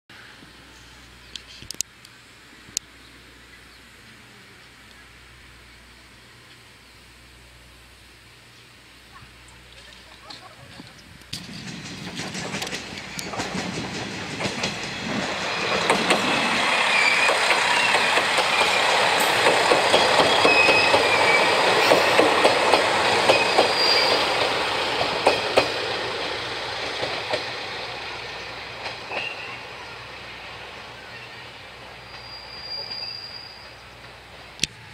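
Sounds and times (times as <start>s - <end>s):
train wheels clicking over rail joints: 11.2s - 29.7s
high wheel squeal: 16.2s - 19.0s, 20.0s - 22.2s, 23.3s - 24.5s, 31.0s - 34.0s.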